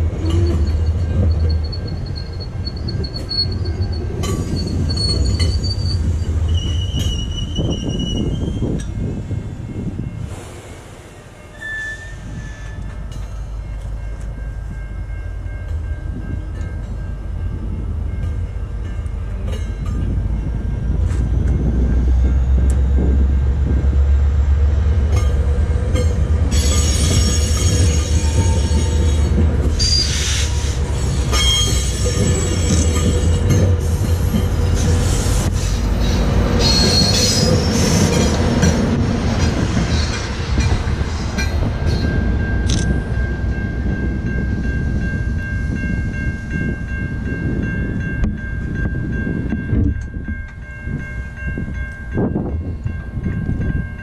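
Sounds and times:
wheels squealing on rail: 0:00.0 - 0:09.1, 0:10.3 - 0:13.0, 0:26.4 - 0:38.7
train coaches rumbling past: 0:00.0 - 0:54.0.

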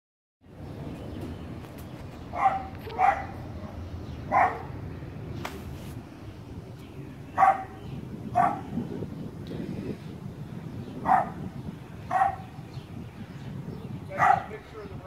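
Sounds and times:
dog barking: 0:02.3 - 0:04.8, 0:07.4 - 0:07.8, 0:08.4 - 0:08.7, 0:11.0 - 0:11.4, 0:12.1 - 0:12.5, 0:14.2 - 0:14.5.

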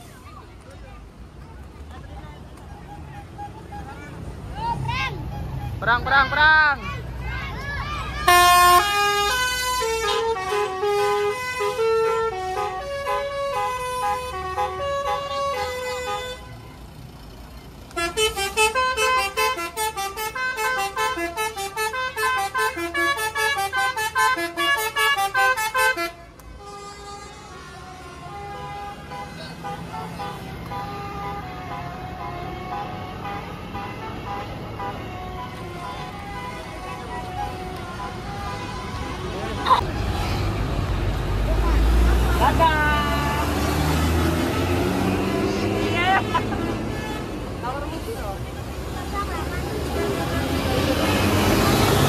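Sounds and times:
traffic noise: 0:00.0 - 0:52.0
bus horn playing a melody: 0:08.2 - 0:16.8, 0:17.9 - 0:39.8, 0:42.5 - 0:47.5.

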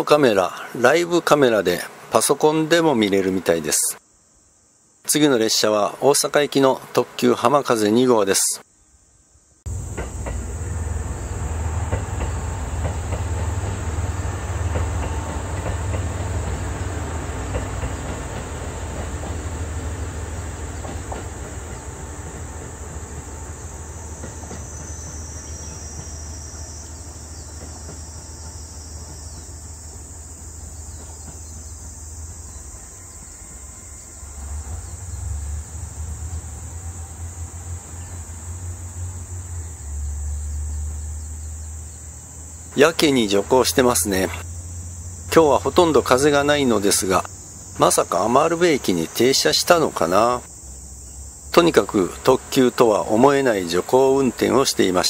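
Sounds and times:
insects chirping: 0:00.0 - 0:55.0
train wheel clatter: 0:09.7 - 0:36.9
diesel train engine rumble: 0:09.7 - 0:55.0.

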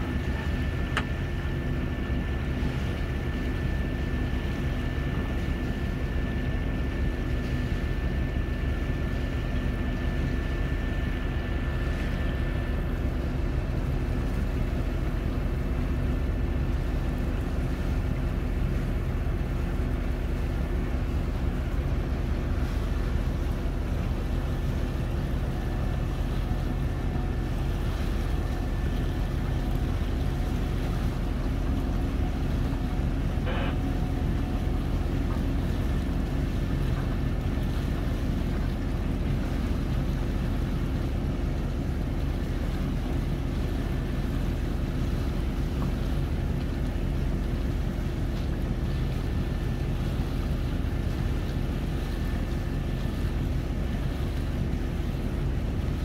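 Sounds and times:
boat engine droning: 0:00.0 - 0:56.0
faint high whine: 0:25.5 - 0:35.8.

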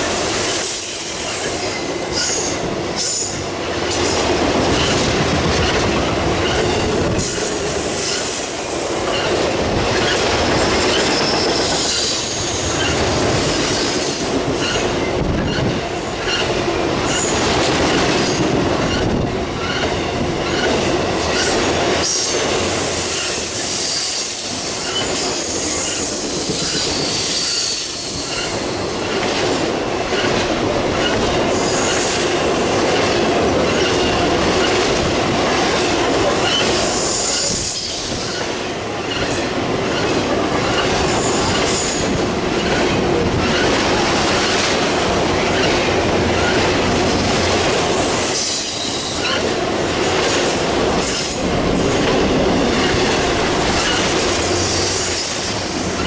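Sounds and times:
freight train wheels rumbling: 0:00.0 - 0:56.0
high-pitched wheel squeal: 0:23.1 - 0:28.6.

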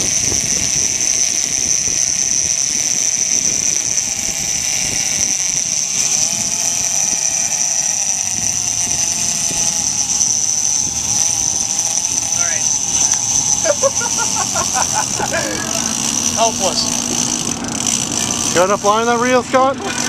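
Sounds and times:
boat engine: 0:00.0 - 0:20.0
fishing reel drag whining: 0:00.0 - 0:20.0.

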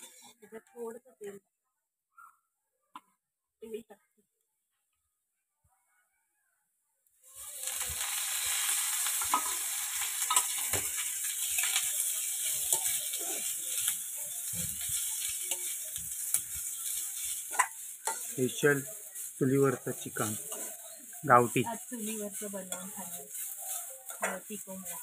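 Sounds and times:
steel spoon scraping a pan: 0:00.0 - 0:00.4, 0:07.4 - 0:25.0
onions sizzling in a pan: 0:07.2 - 0:25.0.

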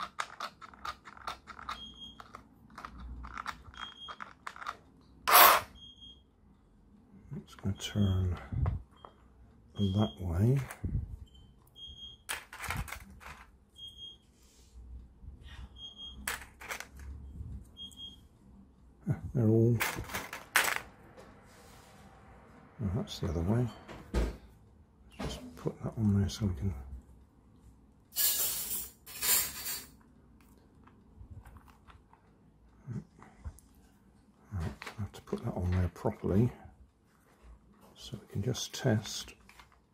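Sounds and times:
plastic parts clicking and rattling: 0:00.0 - 0:05.5, 0:12.3 - 0:13.5, 0:16.3 - 0:17.1, 0:19.8 - 0:20.9.

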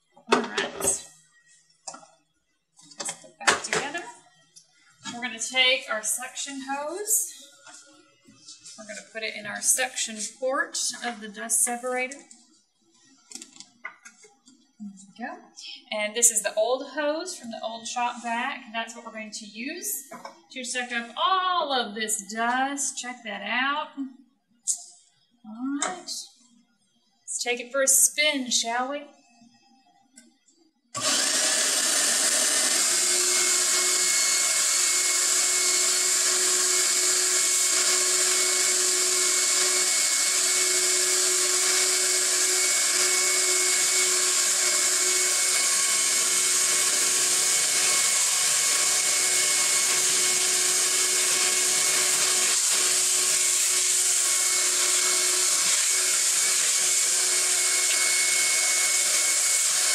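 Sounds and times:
shop vacuum motor whining: 0:31.0 - 0:59.9.

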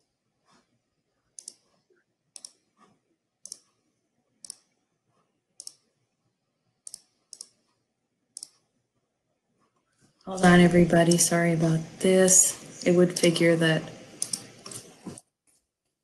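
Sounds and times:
computer mouse clicks: 0:01.3 - 0:03.8, 0:04.4 - 0:04.8, 0:05.6 - 0:05.9, 0:06.8 - 0:08.7, 0:11.0 - 0:11.3, 0:12.8 - 0:13.5, 0:14.2 - 0:15.3.

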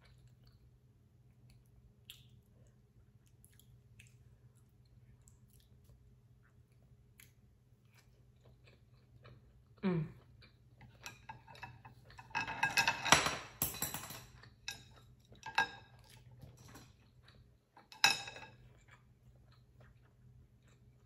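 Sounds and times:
chopsticks and spoon clattering on pot: 0:11.0 - 0:15.9, 0:17.8 - 0:18.6.

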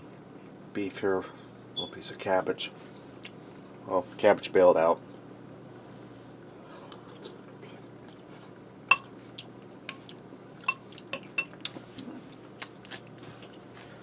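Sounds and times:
metal spoon clinking ceramic bowl: 0:08.9 - 0:09.1.

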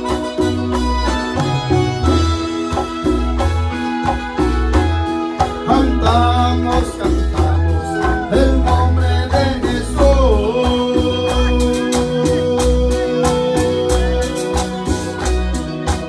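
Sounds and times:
bass keyboard and percussion: 0:00.0 - 0:16.0
held keyboard note: 0:00.0 - 0:16.0
person singing: 0:05.4 - 0:16.0.

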